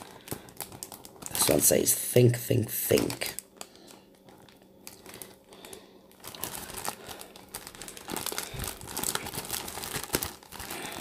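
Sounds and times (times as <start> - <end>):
sticker sheet crinkling: 2.8 - 11.0.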